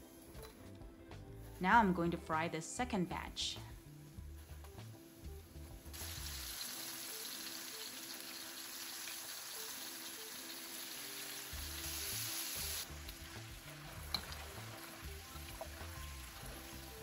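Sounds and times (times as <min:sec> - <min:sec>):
background music with bass: 0:00.0 - 0:06.5, 0:11.5 - 0:17.0
chicken deep-frying in oil: 0:04.4 - 0:17.0.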